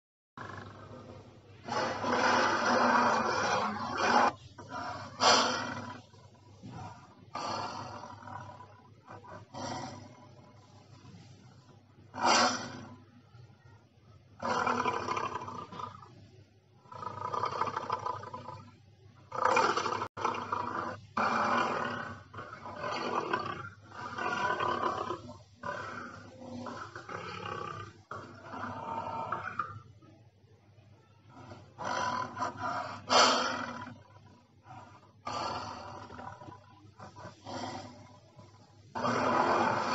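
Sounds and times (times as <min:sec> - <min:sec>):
dinosaur roars: 0:00.4 - 0:11.1, 0:16.8 - 0:30.0, 0:31.3 - 0:39.9.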